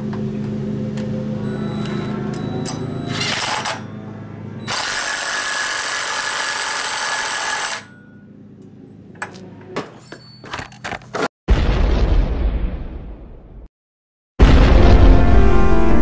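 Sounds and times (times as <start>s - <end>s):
impact driver running: 4.7s - 7.9s.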